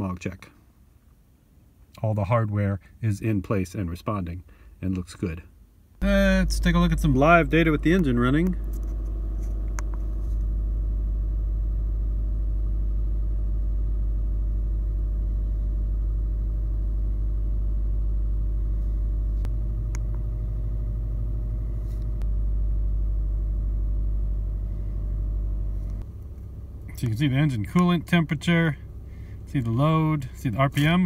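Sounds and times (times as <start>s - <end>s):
car engine idling: 6.0s - 31.0s.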